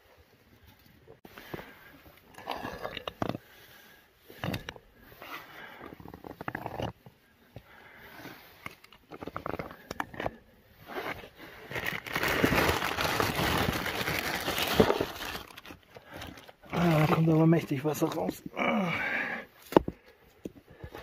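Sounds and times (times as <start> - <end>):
stones scraping and clicking: 1.3 - 12.8, 19.6 - 21.0
plastic bag crinkling: 11.6 - 17.3.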